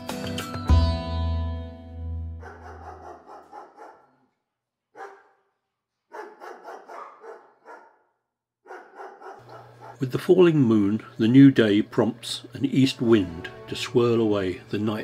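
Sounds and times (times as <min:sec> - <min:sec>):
animal barking yelps: 0:02.4 - 0:04.2, 0:05.0 - 0:05.4, 0:06.1 - 0:08.0, 0:08.6 - 0:10.0.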